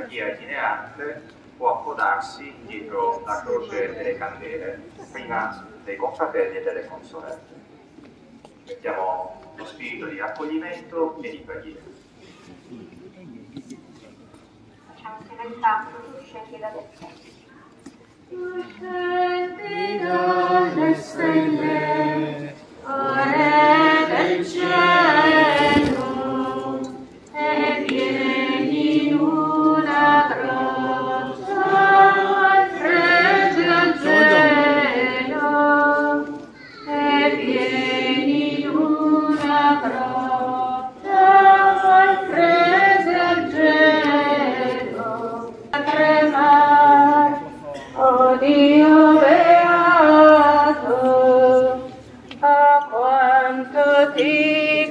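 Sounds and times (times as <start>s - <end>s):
voices singing a hymn: 18.3s - 54.9s.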